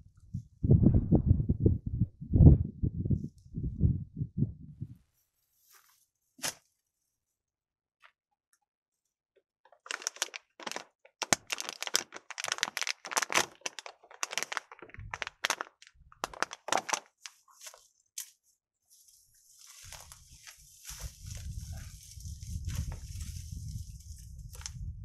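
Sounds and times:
crackling in dry grass: 0:09.7 - 0:25.0.

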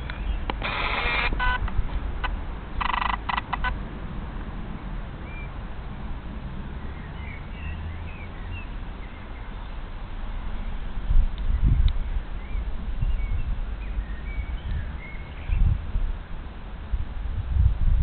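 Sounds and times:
camcorder zoom motor whirring: 0:00.6 - 0:01.6.

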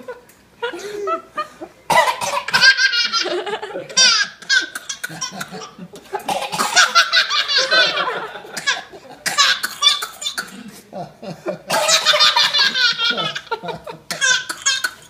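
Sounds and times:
baby coughing: 0:01.9 - 0:02.9, 0:03.9 - 0:07.3, 0:08.6 - 0:10.6, 0:11.7 - 0:13.4, 0:14.1 - 0:15.0
baby laughing: 0:02.4 - 0:10.5, 0:11.7 - 0:15.0.

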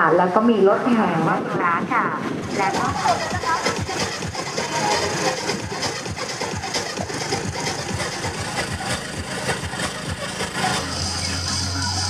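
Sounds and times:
vehicle engine idling: 0:02.6 - 0:12.0.

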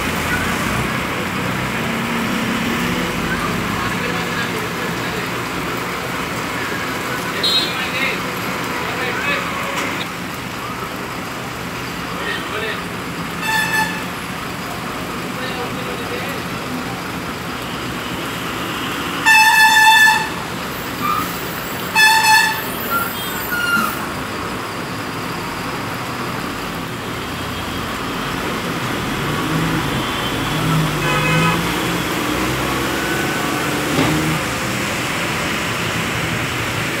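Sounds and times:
bus engine rumbling: 0:00.0 - 0:37.0
heavy rain on wet street: 0:00.0 - 0:37.0
road traffic: 0:00.0 - 0:37.0
vehicle horn honking: 0:13.4 - 0:14.1, 0:19.2 - 0:20.4, 0:21.8 - 0:23.9, 0:31.0 - 0:31.8.

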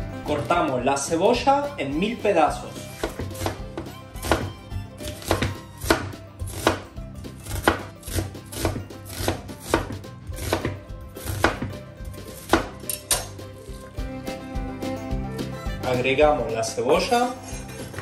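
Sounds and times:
knife chopping on wooden board: 0:02.9 - 0:13.3.

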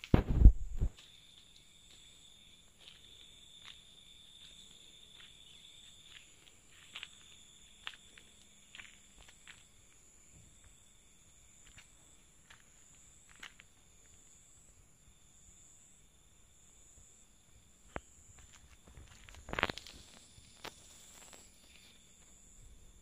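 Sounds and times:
footsteps on paving: 0:00.2 - 0:10.8, 0:11.5 - 0:14.4, 0:18.0 - 0:22.4
high-pitched insect trill: 0:00.4 - 0:23.0.

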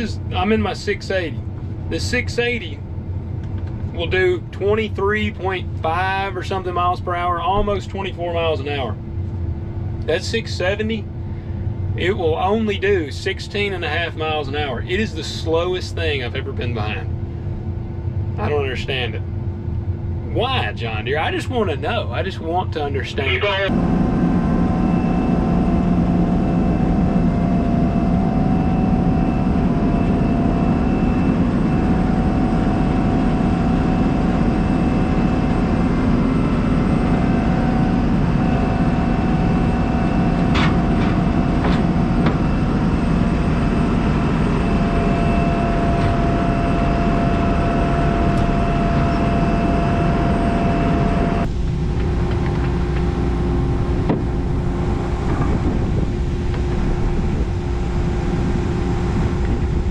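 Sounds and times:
combine harvester drone: 0:00.0 - 0:59.9
machine whining tones: 0:22.9 - 0:59.9.

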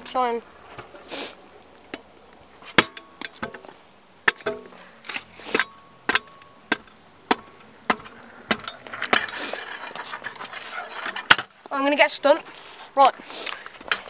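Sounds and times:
metal scooter deck clanking on concrete: 0:05.5 - 0:11.8.

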